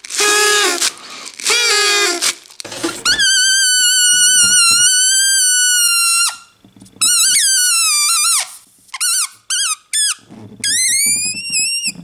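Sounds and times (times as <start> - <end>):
balloon chirps: 0.0 - 12.0
air squealing out of balloon: 0.1 - 12.0.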